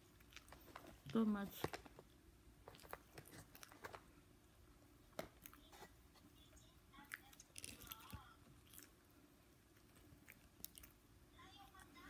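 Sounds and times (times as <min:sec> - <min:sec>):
chewing and crunching food: 0:00.0 - 0:02.0, 0:02.6 - 0:04.2, 0:06.9 - 0:12.0.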